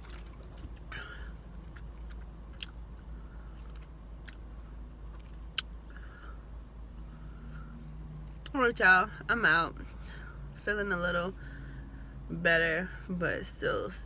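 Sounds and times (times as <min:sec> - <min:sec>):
lip and tongue smacks: 0:05.1 - 0:05.8.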